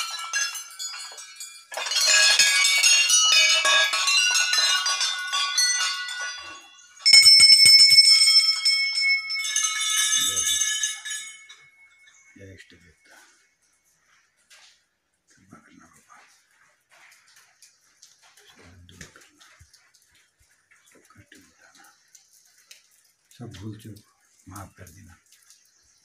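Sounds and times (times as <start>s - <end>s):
single bell ringing: 0.0s - 12.2s
metal bells clanging: 0.0s - 13.2s.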